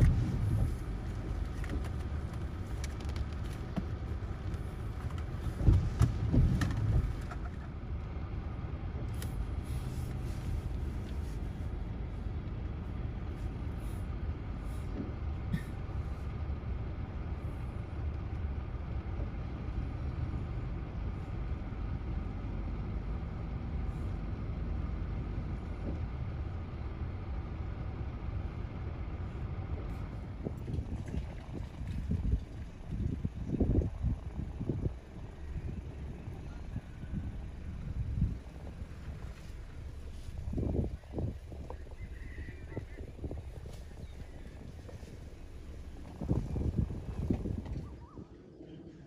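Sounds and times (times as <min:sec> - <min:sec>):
wind and rain rumble: 0:00.0 - 0:49.0.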